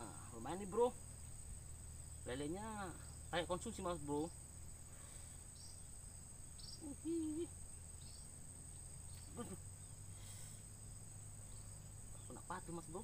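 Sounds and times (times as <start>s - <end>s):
insects chirring: 0.0s - 13.0s
short hummed voice: 6.8s - 7.6s.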